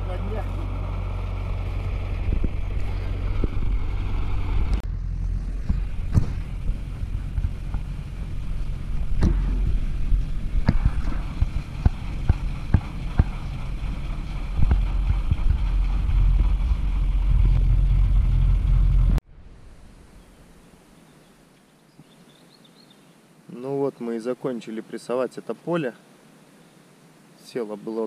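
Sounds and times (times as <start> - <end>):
diesel tractor engine running: 0.0 - 19.2.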